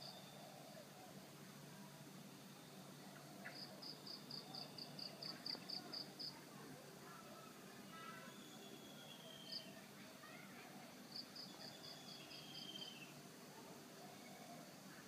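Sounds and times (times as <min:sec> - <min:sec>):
faint gliding whistled calls: 0:00.0 - 0:01.2, 0:07.9 - 0:10.5, 0:11.1 - 0:13.2
insects: 0:00.0 - 0:15.0.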